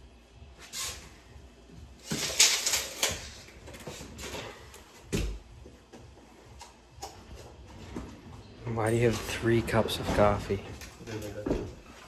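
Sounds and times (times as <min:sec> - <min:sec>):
wood and tools clattering: 0:02.0 - 0:04.8.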